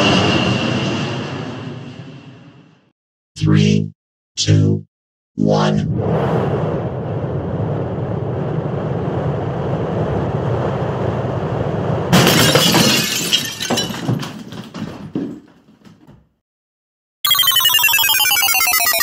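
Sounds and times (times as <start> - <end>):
steady rushing noise: 5.9 - 12.1.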